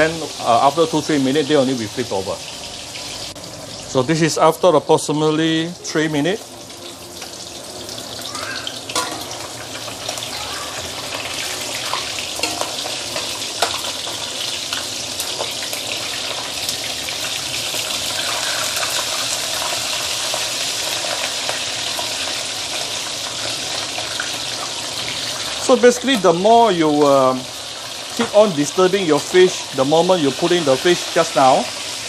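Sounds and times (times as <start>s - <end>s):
fish sizzling in hot oil: 0.0s - 32.0s
sharp oil crackles: 6.7s - 32.0s
metal spatula in wok: 8.8s - 22.4s.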